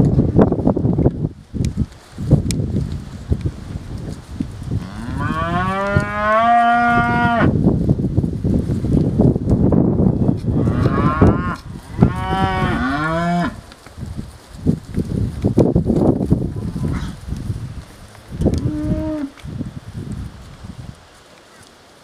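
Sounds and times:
hooves scuffling on dirt: 0:00.0 - 0:22.0
cattle mooing: 0:04.8 - 0:07.5, 0:10.6 - 0:13.6.

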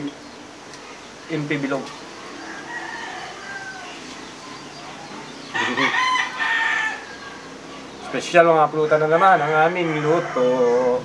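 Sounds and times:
rooster crowing: 0:02.2 - 0:08.0, 0:08.8 - 0:11.0.

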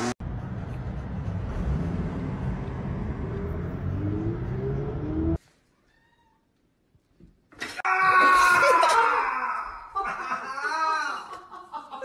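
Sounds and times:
short rising whines: 0:00.0 - 0:05.4.

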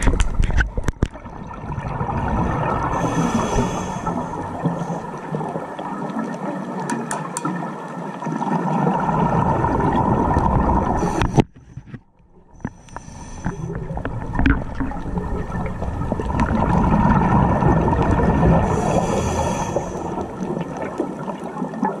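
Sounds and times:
diver's exhaust bubbles gurgling: 0:00.0 - 0:06.9, 0:07.6 - 0:11.6, 0:12.5 - 0:22.0
muffled underwater rumble: 0:08.8 - 0:22.0.

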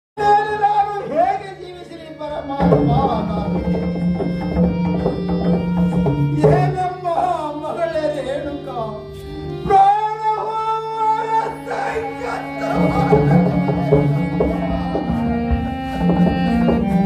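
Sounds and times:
held instrumental notes: 0:00.2 - 0:17.0
drum strokes: 0:02.6 - 0:07.0, 0:12.3 - 0:17.0.

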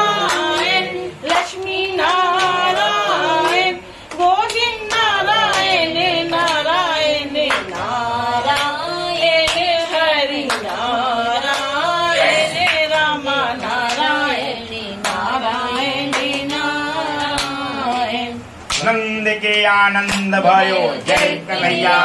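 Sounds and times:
hand claps keeping time: 0:00.0 - 0:19.0, 0:20.0 - 0:20.4, 0:21.1 - 0:21.4
devotional song singing: 0:00.0 - 0:22.0.

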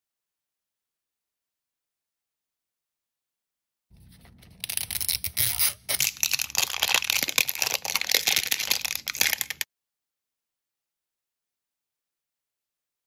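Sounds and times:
plastic wrapper crinkling and tearing: 0:04.0 - 0:09.7.

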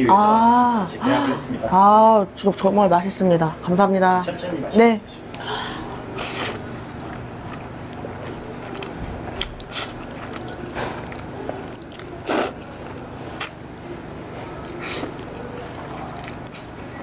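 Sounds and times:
person chewing: 0:06.0 - 0:17.0
person slurping noodles: 0:06.2 - 0:06.7, 0:12.2 - 0:12.6.

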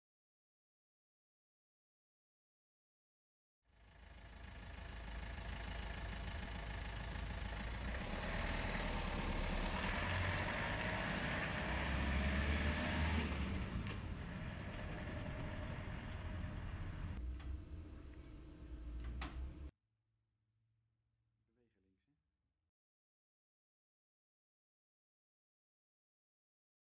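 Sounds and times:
vehicle driving past: 0:03.8 - 0:17.3.

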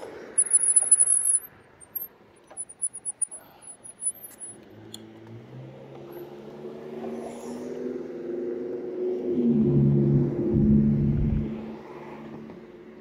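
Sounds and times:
faint high chirps: 0:00.4 - 0:04.6
car passing by: 0:04.7 - 0:13.0.

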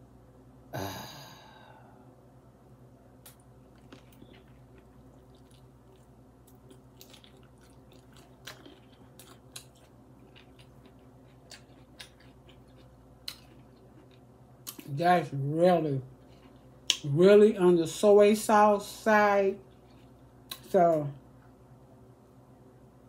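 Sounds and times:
person chewing food: 0:03.2 - 0:15.0, 0:16.0 - 0:17.1, 0:19.6 - 0:20.7.

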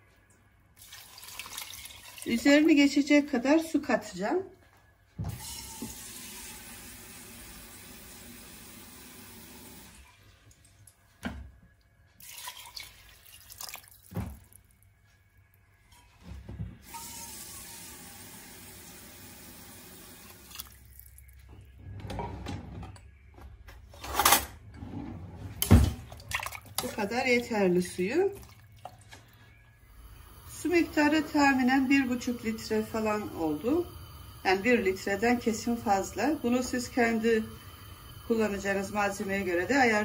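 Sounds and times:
water pouring into a pot: 0:00.8 - 0:02.7, 0:12.2 - 0:14.7, 0:16.8 - 0:21.4, 0:26.2 - 0:29.2, 0:29.8 - 0:40.0.

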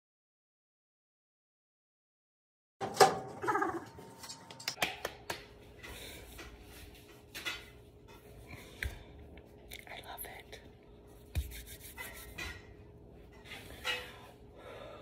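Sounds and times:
metal cabinet doors clicking shut: 0:02.8 - 0:03.8.

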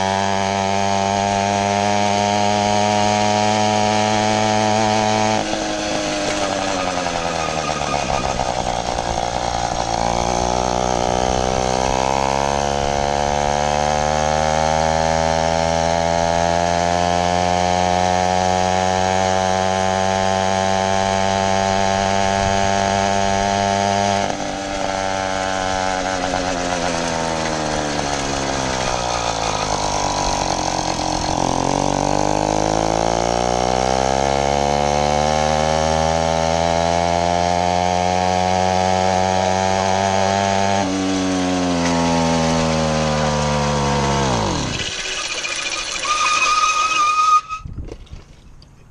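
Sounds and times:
two-stroke engine revving: 0:00.0 - 0:47.6.

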